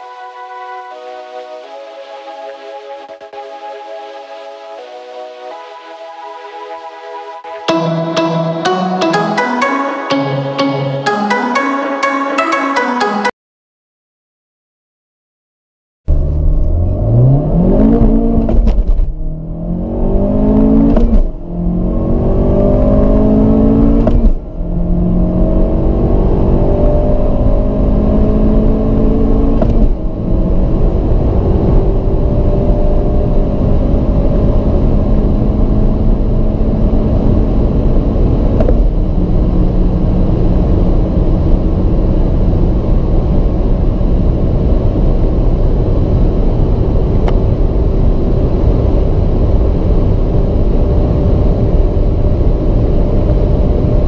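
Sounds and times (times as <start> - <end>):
car engine accelerating through gears: 16.1 - 54.0.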